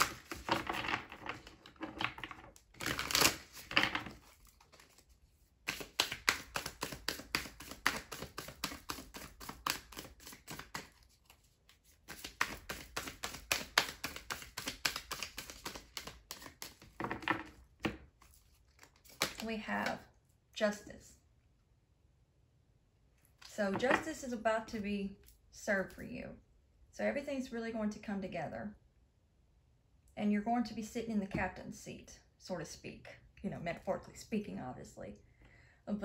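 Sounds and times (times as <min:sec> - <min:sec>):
cards being shuffled: 0:00.0 - 0:20.0.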